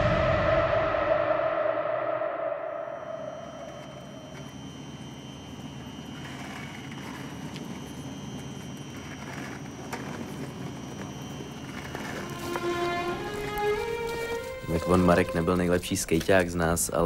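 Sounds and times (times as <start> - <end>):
skateboard wheels rolling on concrete: 3.6 - 17.0
wheels clicking over joints: 6.2 - 17.0.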